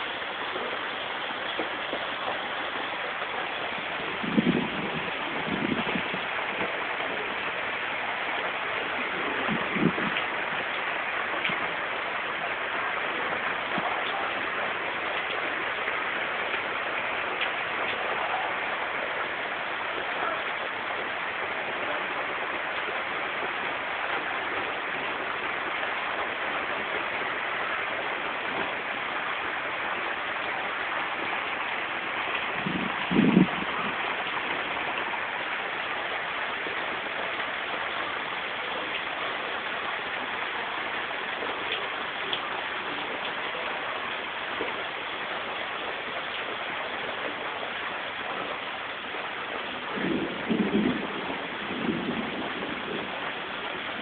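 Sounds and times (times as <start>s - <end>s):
heavy rain on roofs: 0.0s - 54.0s.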